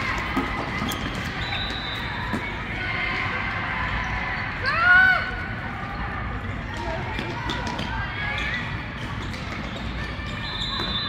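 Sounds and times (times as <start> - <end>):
distant voices and movement: 0.0 - 11.0
shoe squeak: 0.6 - 2.4, 8.3 - 11.0.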